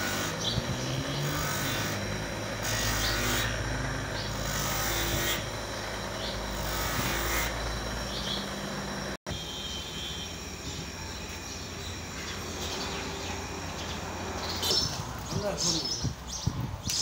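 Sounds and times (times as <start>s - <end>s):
rubber rasping on grinding wheel: 0.0s - 9.2s
bench grinder humming: 0.0s - 15.3s.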